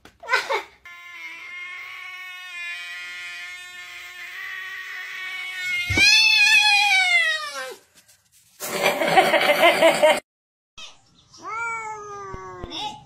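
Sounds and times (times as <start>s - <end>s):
cat yowling: 1.2s - 7.8s.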